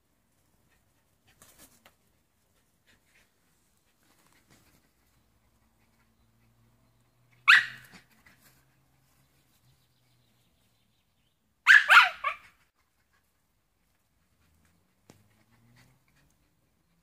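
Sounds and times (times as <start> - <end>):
dog barking: 7.4 - 8.0, 11.6 - 12.6.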